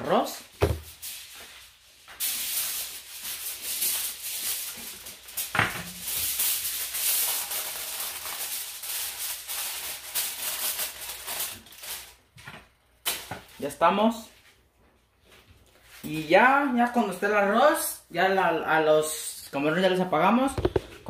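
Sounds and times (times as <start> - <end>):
aluminium foil crinkling: 0.1 - 13.7.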